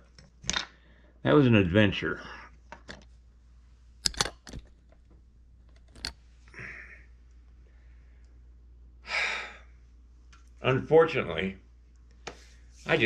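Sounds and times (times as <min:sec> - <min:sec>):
light handling noises: 0:04.0 - 0:06.5.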